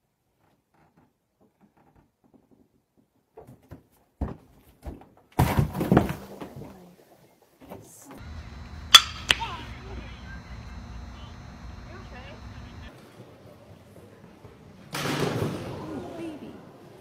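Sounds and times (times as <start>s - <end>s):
outdoor background noise: 0.1s - 17.0s
bat hitting softball: 8.2s - 11.0s.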